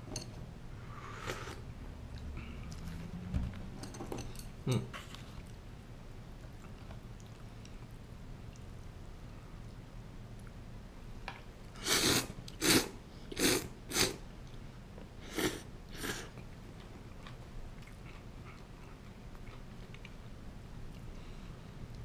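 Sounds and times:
person slurping noodles: 0.9s - 1.6s, 11.8s - 14.2s, 15.3s - 16.3s.

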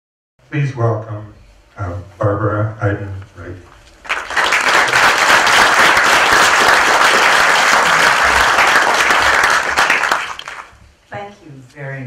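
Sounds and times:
audience applauding: 4.0s - 10.8s.

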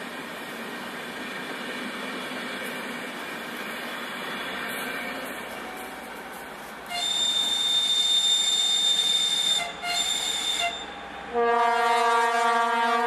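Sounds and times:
deep low locomotive horn: 6.9s - 13.0s
shrill high locomotive whistle: 6.9s - 13.0s.

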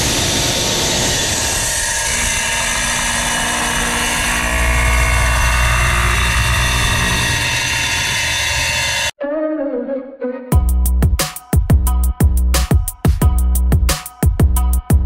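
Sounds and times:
wet tile saw cutting tile: 0.4s - 9.1s.

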